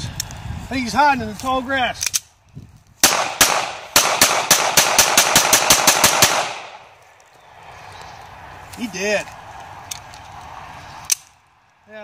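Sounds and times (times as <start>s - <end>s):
pistol shots: 3.0s - 6.8s.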